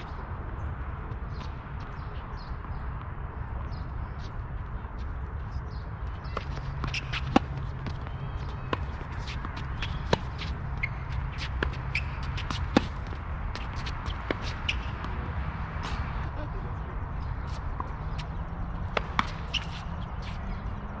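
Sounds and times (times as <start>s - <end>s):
shoe scuffs on court: 19.0s - 20.5s.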